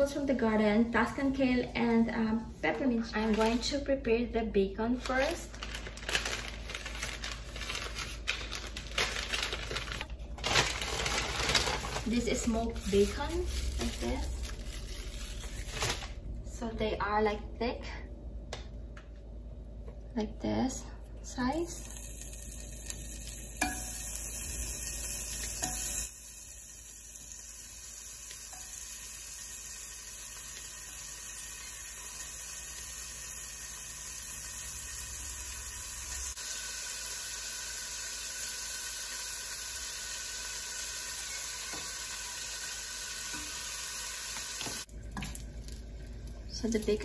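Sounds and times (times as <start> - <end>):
bacon sizzling in a pan: 10.8 - 16.0, 21.5 - 47.0.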